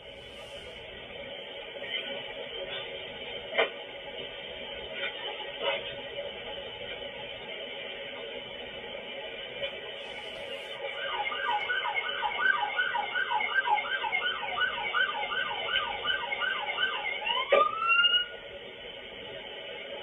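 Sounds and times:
police siren yelp and wail: 0:10.8 - 0:18.4.

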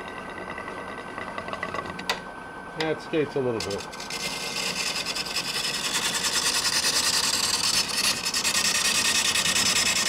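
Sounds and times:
lathe tool scraping wood: 0:03.6 - 0:10.0.

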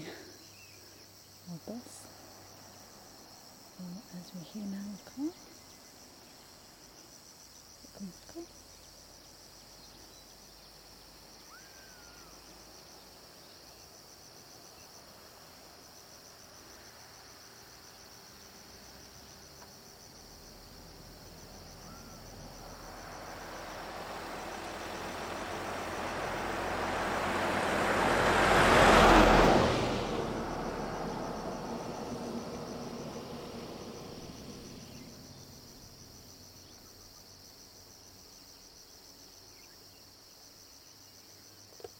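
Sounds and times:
insects chirring: 0:00.0 - 0:41.9
car passing by: 0:20.6 - 0:36.2.

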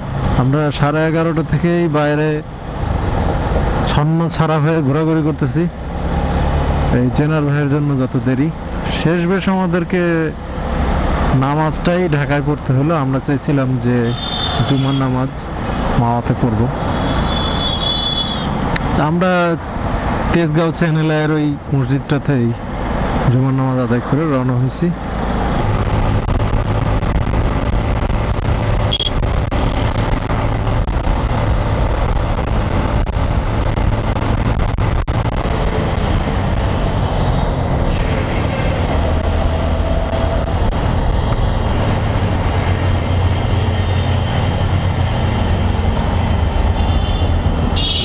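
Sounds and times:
road noise: 0:00.0 - 0:48.0
rush of wind: 0:23.9 - 0:48.0.

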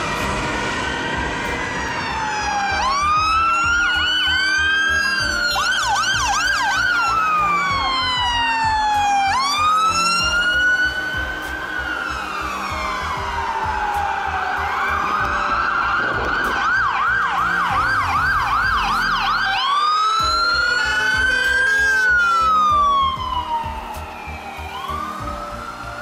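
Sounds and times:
ambulance siren wailing and yelping: 0:00.0 - 0:26.0.

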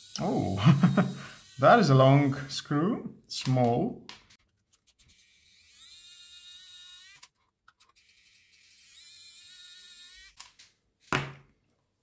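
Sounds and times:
electric screwdriver whining: 0:00.0 - 0:02.5, 0:05.1 - 0:10.6.

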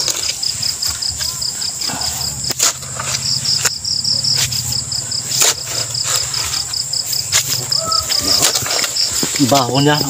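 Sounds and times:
crickets chirping: 0:00.0 - 0:10.0
high insect trill: 0:00.0 - 0:10.0
digging bar striking soil: 0:02.2 - 0:10.0.

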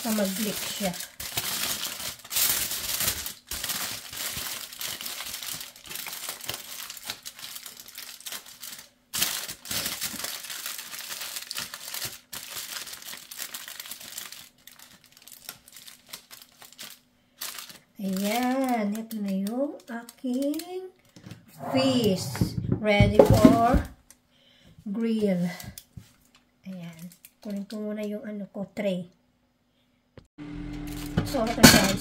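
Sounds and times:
aluminium foil crinkling: 0:00.0 - 0:21.1, 0:25.0 - 0:28.1.

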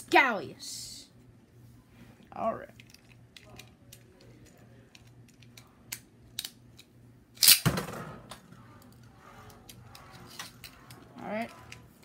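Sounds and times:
plastic parts clicking and snapping: 0:02.8 - 0:07.6.

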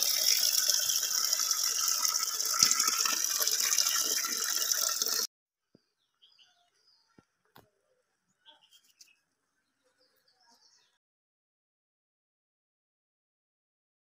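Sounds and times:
water pouring into a pot: 0:00.0 - 0:05.3.

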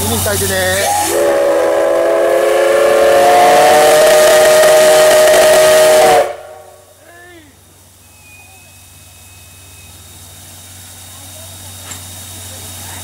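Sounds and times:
heavy steam hiss: 0:00.0 - 0:13.0
steam whistle blast: 0:00.8 - 0:06.9.

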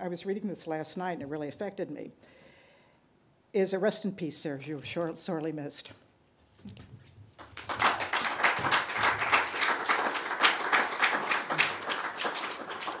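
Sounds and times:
audience applauding: 0:07.4 - 0:13.0.

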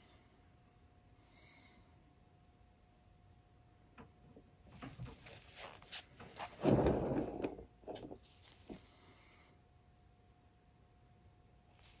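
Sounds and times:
rustling scrape: 0:04.8 - 0:08.9.

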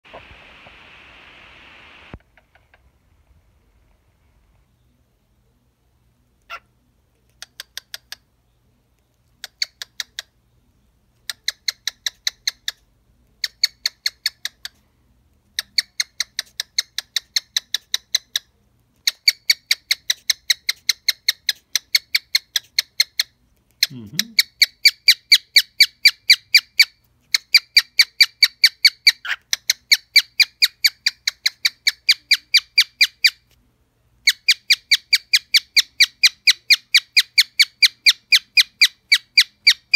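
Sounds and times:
cockatiel ticking: 0:11.2 - 0:12.8.

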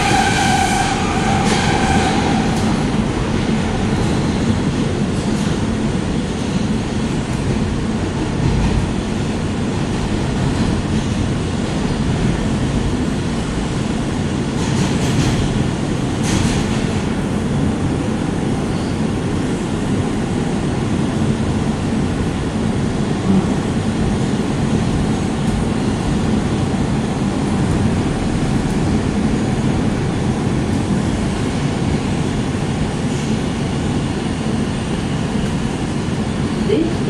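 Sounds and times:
subway wheels rumbling on rail: 0:00.0 - 0:37.0.

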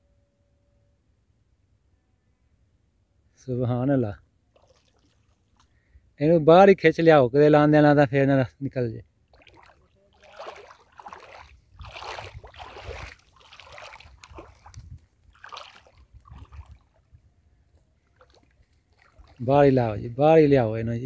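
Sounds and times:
water splashing and sloshing: 0:04.5 - 0:05.8, 0:09.2 - 0:20.2.

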